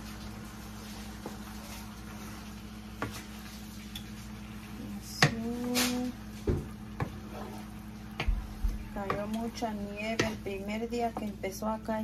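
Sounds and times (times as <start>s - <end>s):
steady low hum: 0.0s - 12.0s
wooden spoon knocking in skillet: 6.4s - 7.3s, 8.0s - 11.4s.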